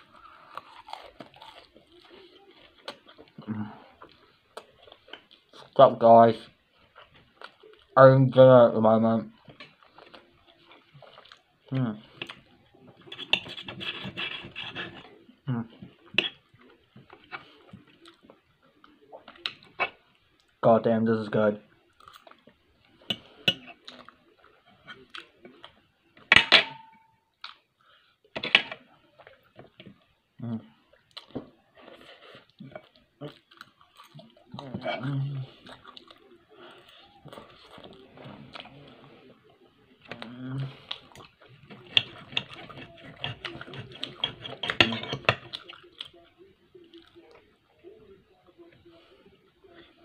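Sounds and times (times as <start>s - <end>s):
chewing: 0.0s - 5.8s, 6.6s - 8.0s, 9.3s - 20.6s, 21.8s - 25.8s, 30.9s - 48.1s
cutlery clinking: 13.0s - 15.1s, 16.1s - 16.4s, 23.0s - 24.0s, 26.2s - 27.2s, 28.4s - 28.8s, 41.7s - 45.9s
cutlery scraping on a plate: 13.0s - 15.1s, 16.1s - 16.4s, 23.0s - 23.8s, 28.4s - 28.8s, 41.7s - 45.8s.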